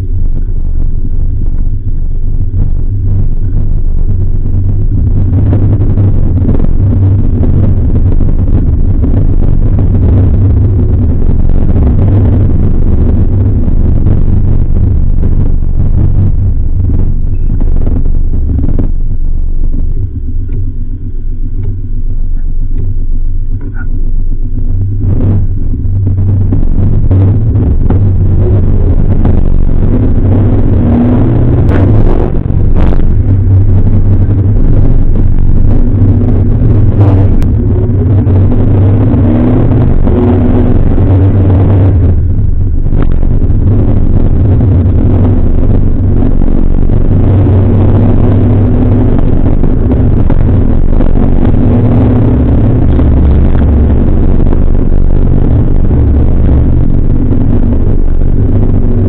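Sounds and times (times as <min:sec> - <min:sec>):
car engine pulling: 0:00.0 - 0:59.0.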